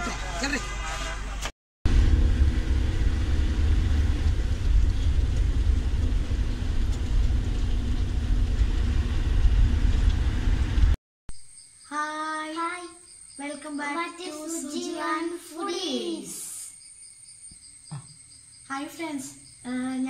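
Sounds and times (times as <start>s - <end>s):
bus engine and tyres rumbling: 0.0s - 11.0s
child's voice: 11.9s - 16.7s, 18.7s - 20.0s.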